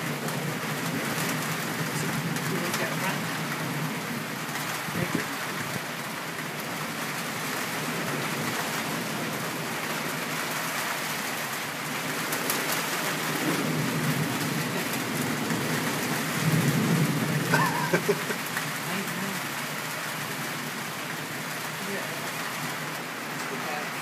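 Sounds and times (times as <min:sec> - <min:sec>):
low rumbles of thunder: 0:00.0 - 0:11.1, 0:11.8 - 0:23.1
steady rain: 0:00.0 - 0:24.0.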